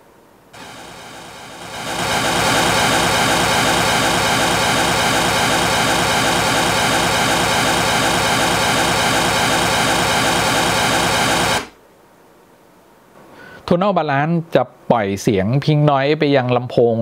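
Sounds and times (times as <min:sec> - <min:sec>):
pink noise hiss: 0:00.0 - 0:09.7.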